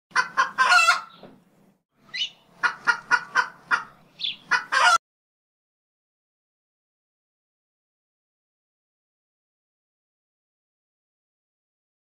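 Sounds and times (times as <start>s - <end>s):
chicken squawking and clucking: 0.1s - 1.2s, 2.0s - 5.0s.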